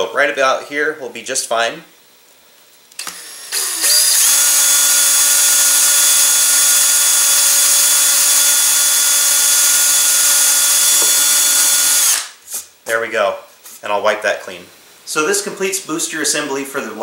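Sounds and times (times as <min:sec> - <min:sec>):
cordless drill whining: 0:03.0 - 0:12.3.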